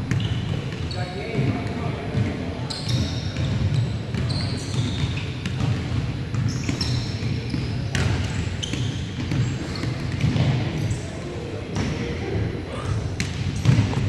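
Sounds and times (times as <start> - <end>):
basketballs bouncing on hardwood: 0.0 - 10.6, 13.2 - 14.0
sneakers squeaking: 0.0 - 12.1, 12.8 - 14.0
murmur of voices: 6.8 - 14.0.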